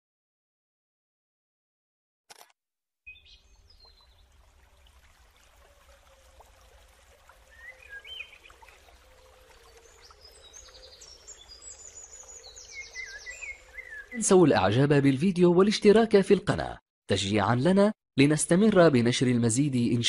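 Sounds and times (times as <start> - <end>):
birds chirping and singing: 7.5 - 14.6.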